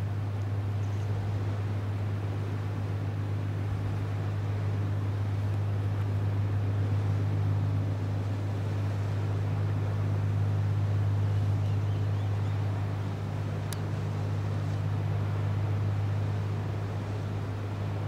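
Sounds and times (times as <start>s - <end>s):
faint tick: 5.5s - 5.7s, 13.6s - 13.9s.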